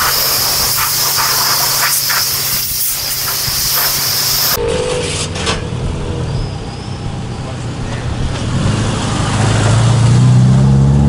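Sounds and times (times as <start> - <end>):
high-pressure water spray hissing: 0.0 - 4.6.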